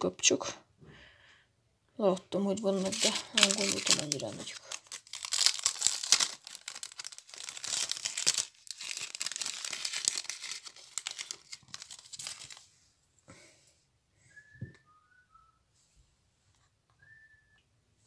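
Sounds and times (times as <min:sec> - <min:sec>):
plastic packaging crinkling: 0:02.3 - 0:12.7.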